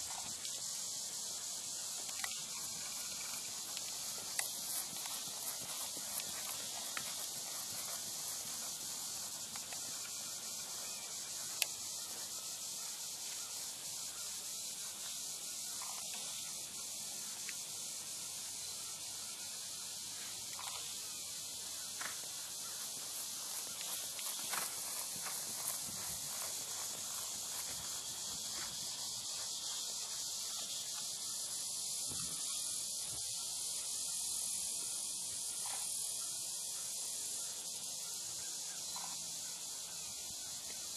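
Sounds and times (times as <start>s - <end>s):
high-pitched hiss: 0.0s - 40.9s
high-pitched insect buzz: 0.0s - 40.9s
hooves thudding on grass: 1.7s - 11.4s, 21.9s - 31.2s.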